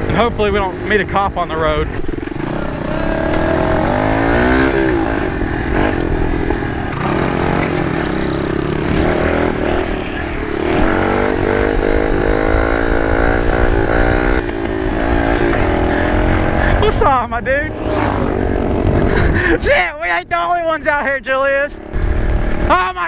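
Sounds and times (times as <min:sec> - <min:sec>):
small motorcycle engine running: 0:01.9 - 0:19.4.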